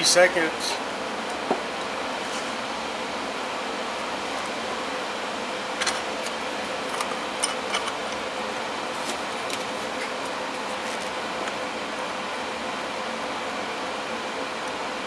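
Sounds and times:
fan-like background hum: 0.0 - 15.0.

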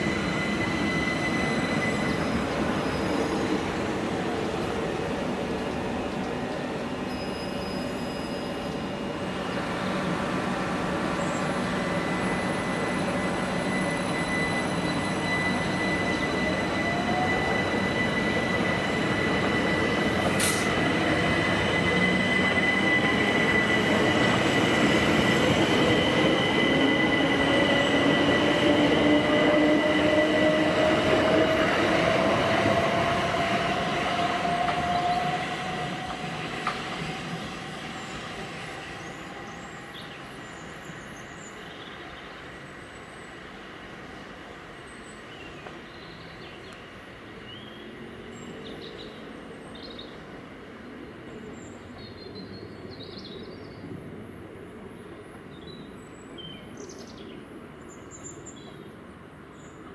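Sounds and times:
steady high whistle: 0.0 - 3.5, 11.7 - 40.2.

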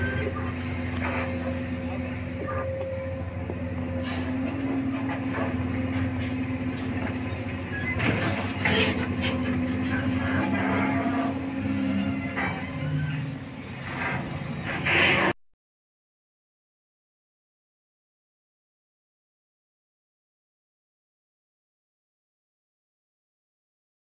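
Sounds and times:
excavator diesel engine running: 0.0 - 15.4.

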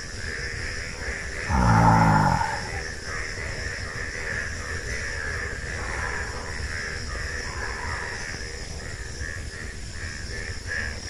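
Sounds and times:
crows cawing: 1.5 - 2.8.

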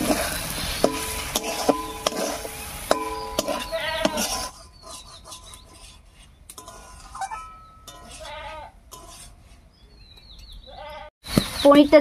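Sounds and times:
metal spatula knocking in pan: 0.9 - 4.3
goats bleating: 3.6 - 4.3.

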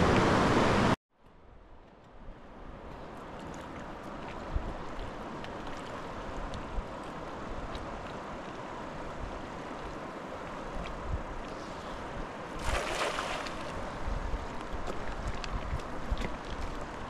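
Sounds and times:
river rushing: 3.0 - 17.0
wind buffeting microphone: 10.6 - 17.0.

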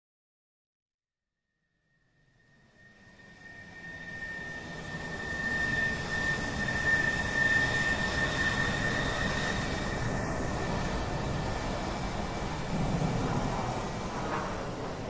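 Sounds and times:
thin high whistling tone: 2.0 - 11.5
rushing rumbling noise: 12.2 - 15.0.

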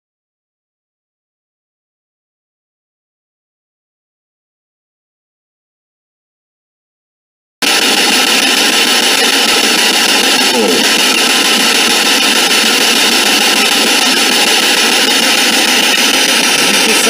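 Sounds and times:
radio static hiss: 7.6 - 17.0
faint garbled radio voice: 8.6 - 17.0.

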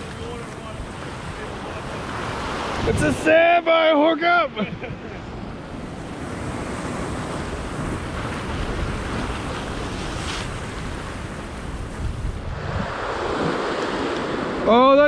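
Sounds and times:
wind rumble on microphone: 0.0 - 3.3, 4.7 - 14.8
ocean swell washing over rocks: 5.2 - 15.0.

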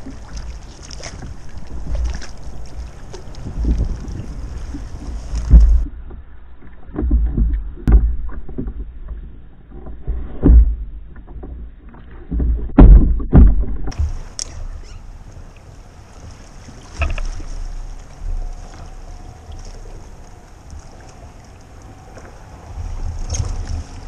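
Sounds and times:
water wash: 0.0 - 6.1, 13.3 - 24.0
low thumps on kayak: 3.4 - 14.3.

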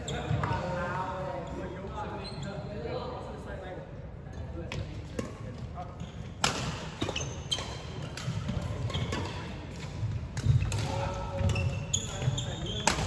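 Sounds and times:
racket hitting shuttlecock: 6.4 - 11.8, 12.8 - 13.0
shoes squeaking on wooden floor: 11.5 - 12.9.

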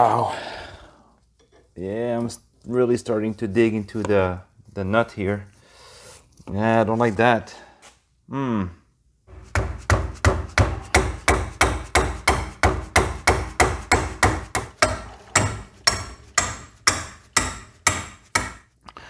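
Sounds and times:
hammer striking metal: 9.3 - 18.6.

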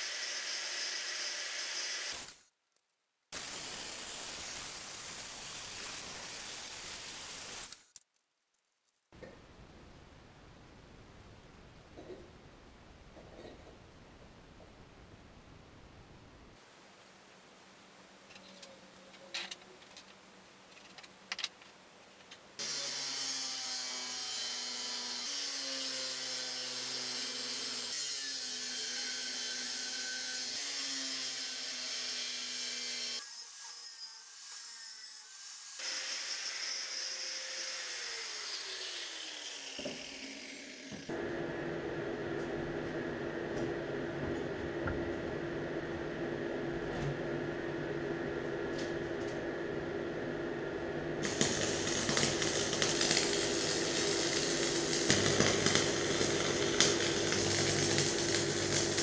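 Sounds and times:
steady machine sound: 47.4 - 59.0
power tool winding down whine: 51.2 - 59.0.

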